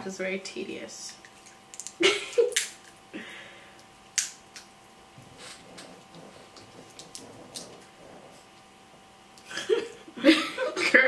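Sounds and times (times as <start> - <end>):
crab shells cracking: 1.3 - 3.0.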